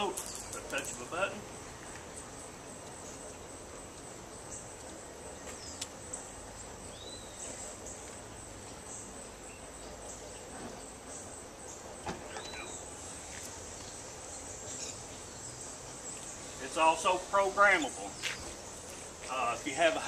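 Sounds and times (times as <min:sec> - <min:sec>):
insects buzzing: 0:00.0 - 0:20.0
faint sharp clicks: 0:05.8 - 0:06.0.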